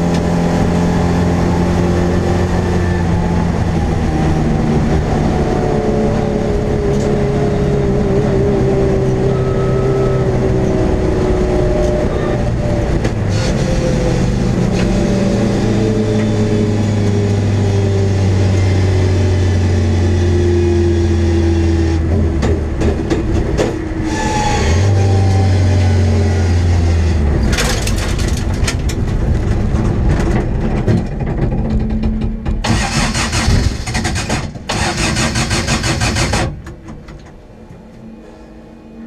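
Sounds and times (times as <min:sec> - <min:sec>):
race engine running and misfiring: 0:27.4 - 0:37.2.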